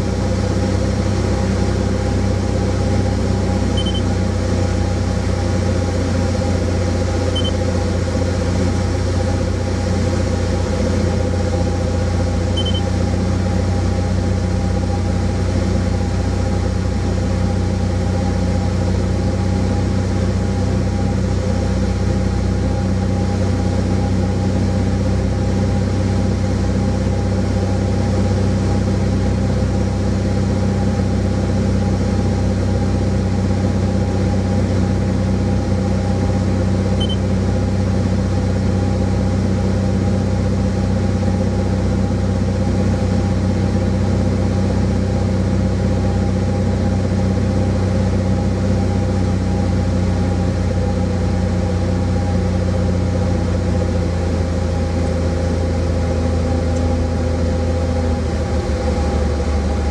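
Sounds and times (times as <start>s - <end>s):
aircraft engine and propeller: 0.0s - 59.9s
short high beeps: 3.8s - 4.1s, 7.3s - 7.6s, 12.6s - 12.9s, 37.0s - 37.2s.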